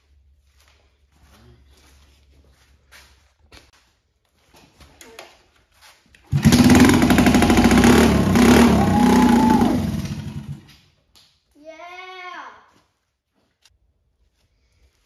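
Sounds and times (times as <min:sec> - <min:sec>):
small engine running: 0:06.3 - 0:10.7.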